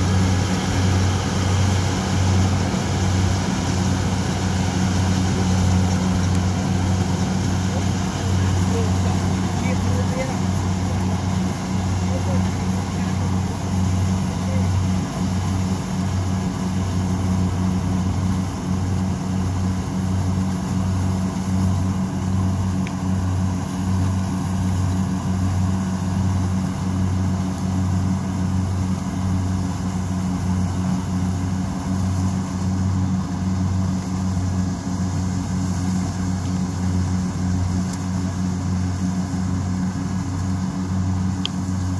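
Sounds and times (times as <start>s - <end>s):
harvester engine pulsing drone: 0.0s - 41.9s.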